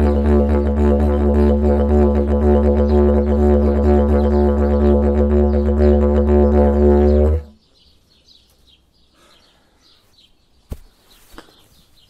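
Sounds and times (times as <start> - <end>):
didgeridoo drone: 0.0 - 7.5.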